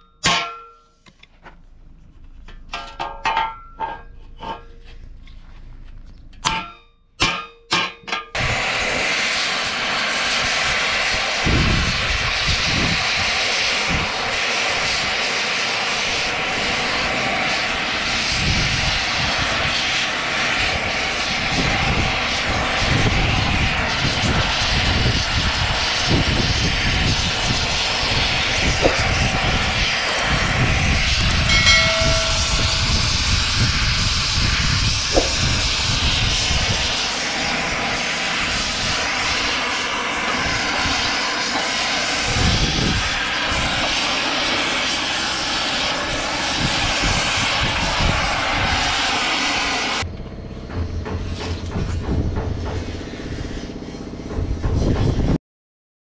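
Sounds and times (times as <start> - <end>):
cutting torch flame rushing: 8.3 - 50.1.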